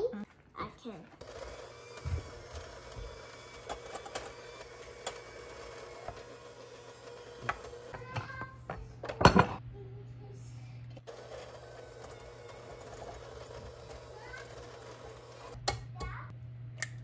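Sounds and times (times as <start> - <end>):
electric hand mixer running: 1.2 - 9.5, 11.0 - 15.6
beaters clicking on bowl: 1.2 - 9.6, 11.0 - 16.2.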